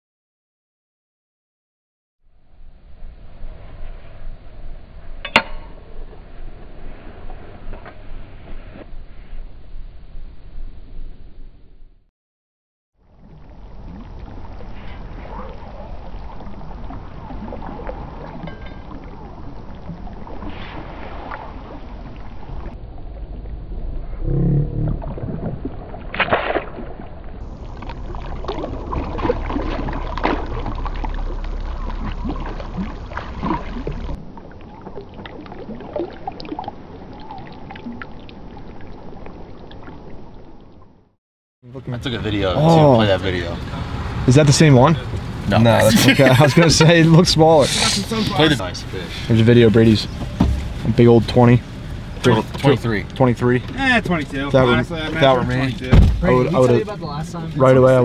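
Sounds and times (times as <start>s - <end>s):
creek water splashing and swirling: 13.0s - 23.7s, 25.0s - 40.8s.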